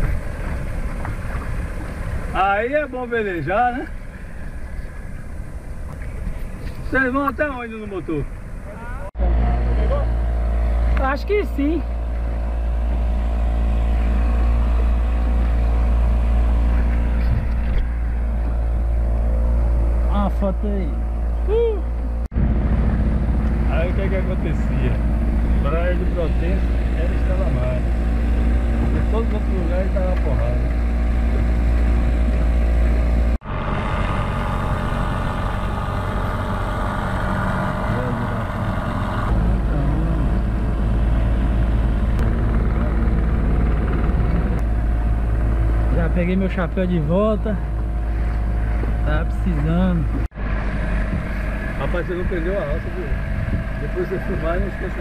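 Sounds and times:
wind noise: 0.0s - 2.5s, 49.9s - 55.0s
water rushing past hull: 0.0s - 9.1s
boat motor droning: 0.0s - 55.0s
water noise: 0.0s - 55.0s.

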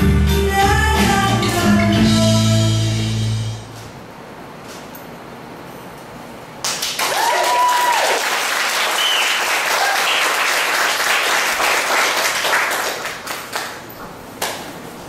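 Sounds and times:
audience applauding: 6.6s - 14.6s
shouts of cheer: 7.0s - 8.4s, 9.0s - 10.2s
person whooping: 7.1s - 8.3s, 9.0s - 10.2s.

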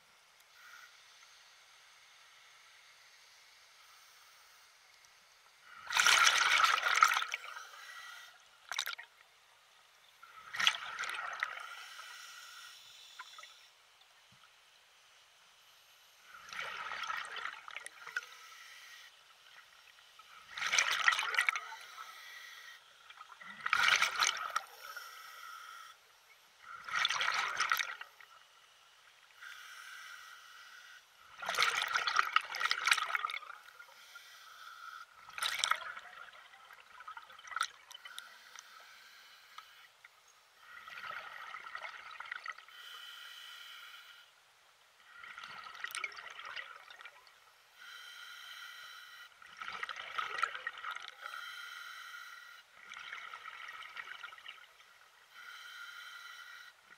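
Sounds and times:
water splashing: 5.8s - 7.5s.

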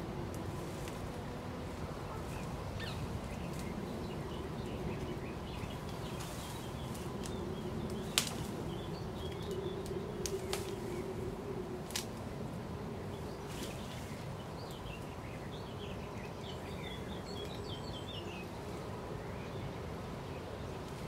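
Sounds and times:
small birds chirping: 1.7s - 11.2s, 12.8s - 21.0s.

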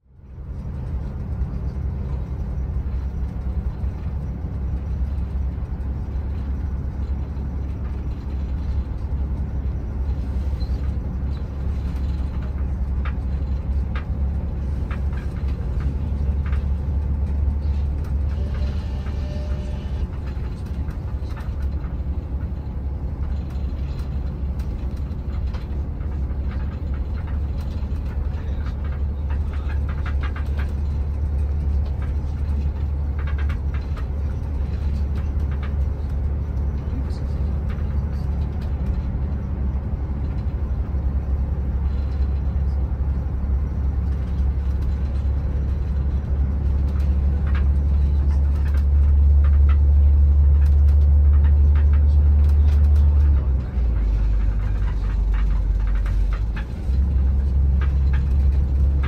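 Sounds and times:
bus engine and road rumble: 0.0s - 59.0s
clicks and rattles: 20.1s - 43.1s, 44.0s - 59.0s.

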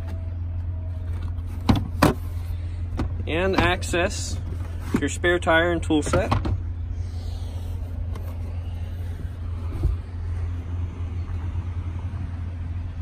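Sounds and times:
low rumble: 6.6s - 13.0s.

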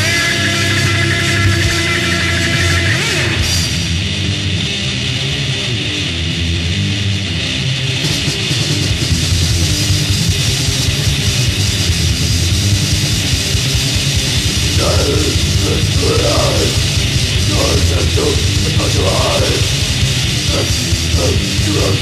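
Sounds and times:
death metal band playing: 0.0s - 22.0s
deep growled vocal: 14.6s - 22.0s.

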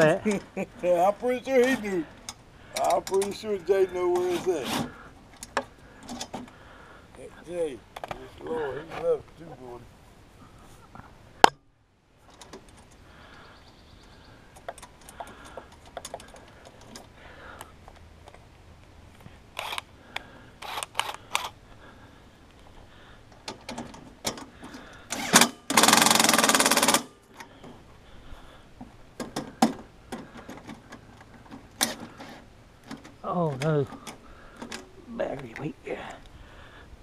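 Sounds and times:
metal parts clicking and clanking: 1.6s - 3.6s
cordless drill running: 19.6s - 19.8s, 20.6s - 21.5s.

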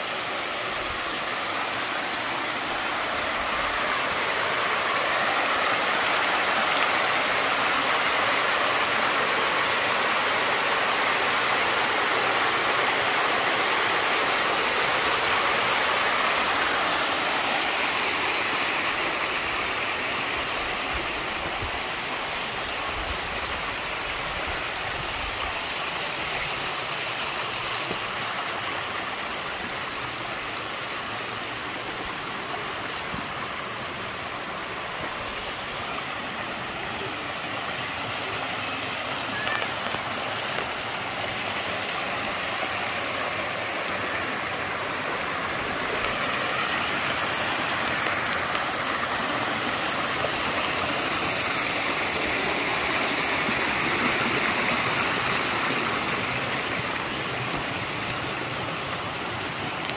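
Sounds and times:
stream rushing over stones: 0.0s - 59.9s.

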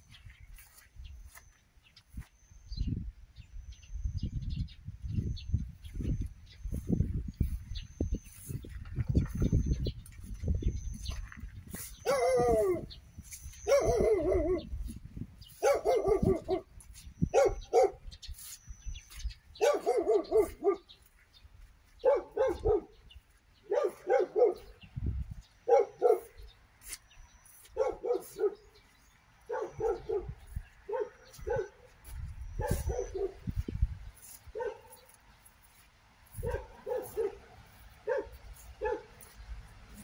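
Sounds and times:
dog barking: 12.0s - 12.9s, 13.6s - 14.7s, 15.6s - 16.7s, 17.3s - 18.1s, 19.6s - 20.9s, 22.0s - 23.0s, 23.6s - 24.8s, 25.6s - 26.5s, 27.7s - 28.8s, 29.5s - 31.9s, 32.6s - 33.5s, 34.5s - 35.1s, 36.3s - 39.3s.

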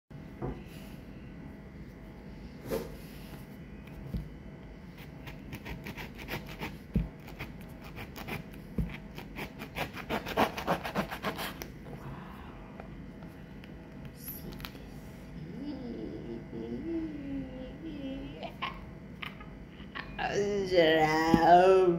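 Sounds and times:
knife sawing through fruit rind: 5.0s - 11.7s.

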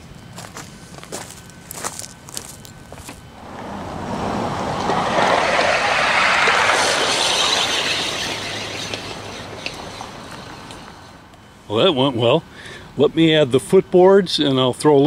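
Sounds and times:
metal wheels rolling on rails: 3.4s - 11.3s.

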